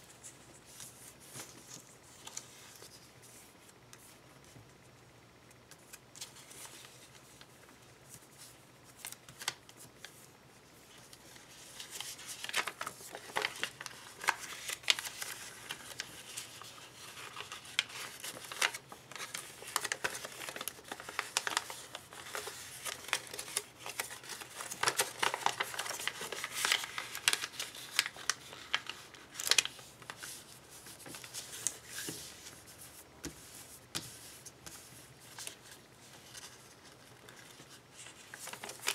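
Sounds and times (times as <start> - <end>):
paper being folded and creased: 10.9 - 38.9.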